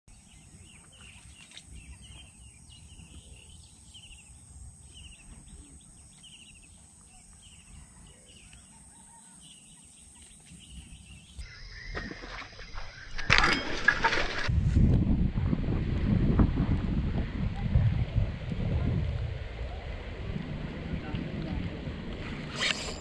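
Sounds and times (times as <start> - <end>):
bird chirping: 0.1 - 13.6.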